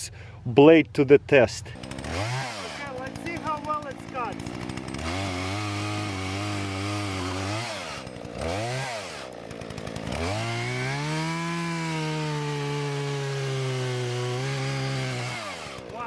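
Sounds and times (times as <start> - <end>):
chainsaw cutting log: 1.6 - 16.0
chainsaw revving: 1.6 - 16.0.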